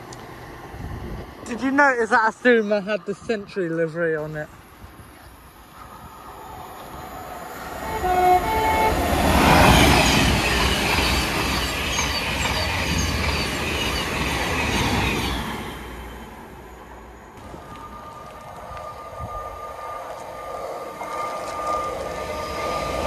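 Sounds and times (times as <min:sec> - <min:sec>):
train passing with rushing rumble: 0:00.0 - 0:23.0
wheels clicking over rail joints: 0:06.8 - 0:15.9
train horn: 0:07.8 - 0:09.9.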